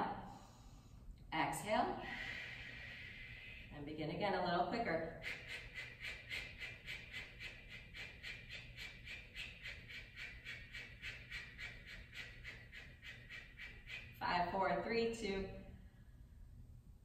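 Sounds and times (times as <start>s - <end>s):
woman's forceful exhales: 2.0s - 3.7s.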